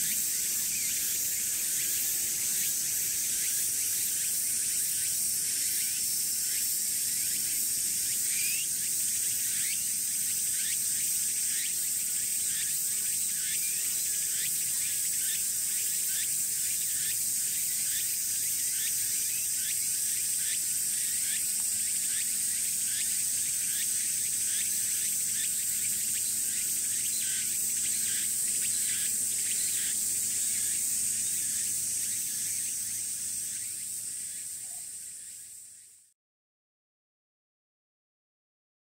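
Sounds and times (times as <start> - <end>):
cicadas buzzing: 0.0 - 36.1
lower chirping call: 5.7 - 16.3, 18.7 - 35.9.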